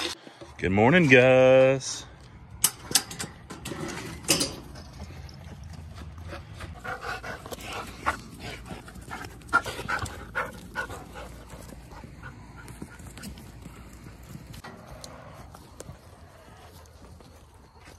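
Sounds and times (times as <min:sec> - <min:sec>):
sharp clicks and knocks: 0:02.6 - 0:04.8
dogs panting: 0:04.6 - 0:17.9.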